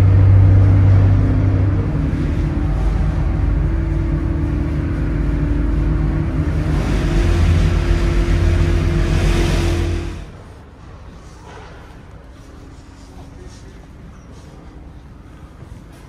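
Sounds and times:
ferry engines droning: 0.0 - 16.0.

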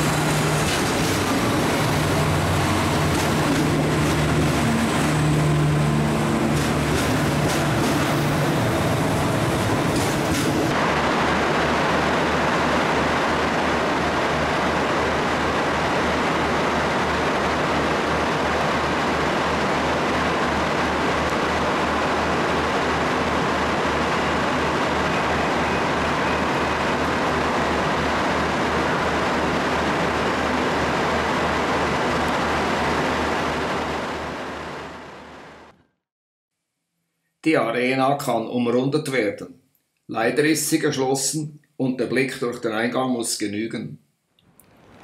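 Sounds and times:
train running: 0.0 - 35.7.

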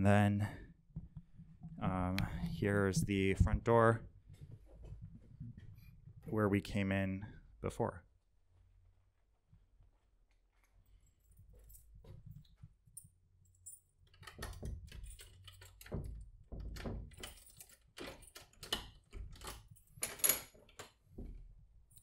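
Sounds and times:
keys jangling: 10.9 - 15.9, 17.0 - 20.6
key clicking in a door lock: 14.0 - 21.0.

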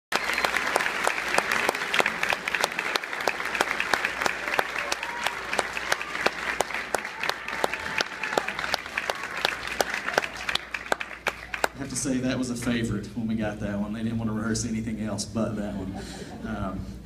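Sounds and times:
audience applauding: 0.1 - 12.2.

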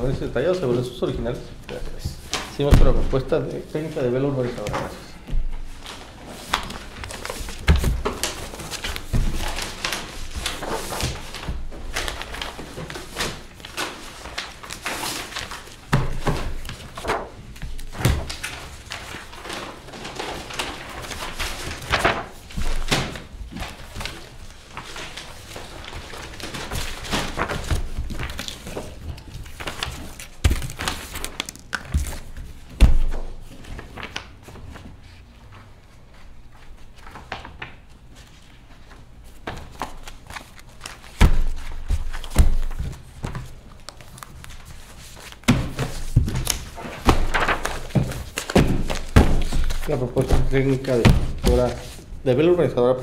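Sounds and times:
paper rustling: 0.0 - 52.7
folders thunking on a table: 2.5 - 3.2.

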